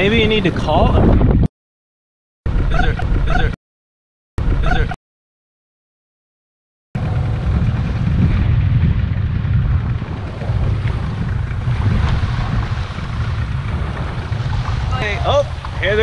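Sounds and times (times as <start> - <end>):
wind buffeting microphone: 0.0 - 1.5, 7.0 - 16.0
shallow water washing: 9.8 - 16.0.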